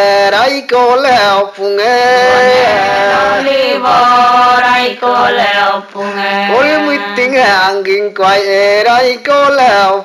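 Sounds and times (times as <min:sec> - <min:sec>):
person chanting with sliding notes: 0:02.1 - 0:07.5.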